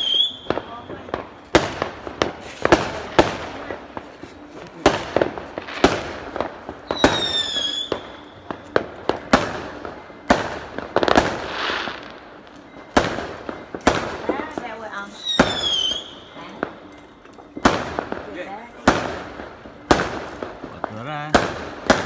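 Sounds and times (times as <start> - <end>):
falling firework whistle: 0.0 - 1.1, 6.8 - 9.7, 15.1 - 16.3
fireworks bangs: 0.0 - 16.9, 17.5 - 22.0.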